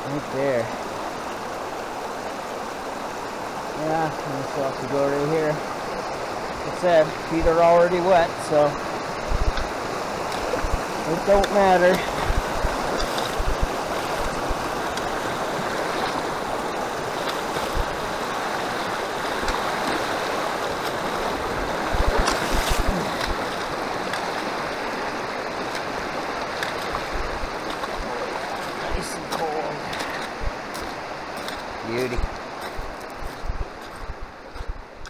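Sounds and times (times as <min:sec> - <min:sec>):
creek rushing: 0:00.0 - 0:35.0
legs splashing through water: 0:08.5 - 0:34.8.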